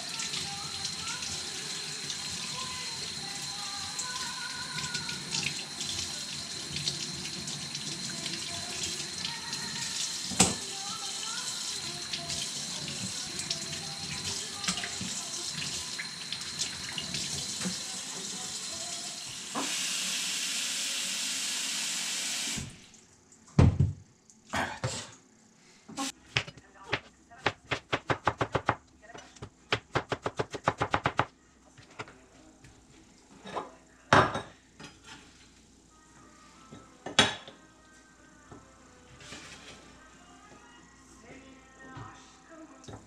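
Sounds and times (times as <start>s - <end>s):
tap water running into sink: 3.9s - 19.9s.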